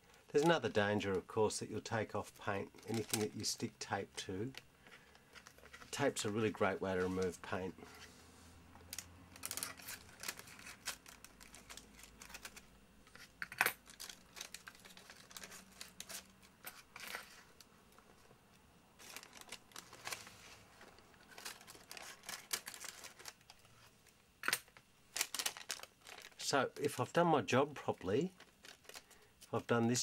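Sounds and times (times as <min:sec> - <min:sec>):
paper crinkling: 0:02.4 - 0:08.1, 0:09.4 - 0:18.2, 0:19.0 - 0:23.9, 0:25.1 - 0:27.0, 0:28.0 - 0:29.7
tape peeling crackles: 0:19.0 - 0:23.8, 0:24.4 - 0:26.5.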